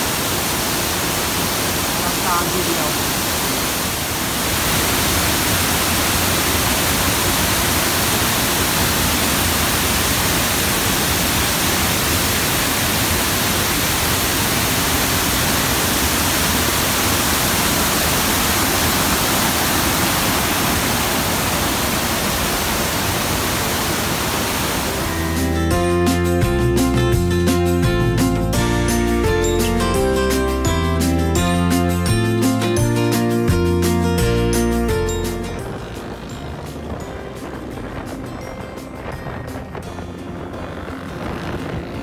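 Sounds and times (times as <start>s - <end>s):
waterfall rushing: 0.0s - 25.7s.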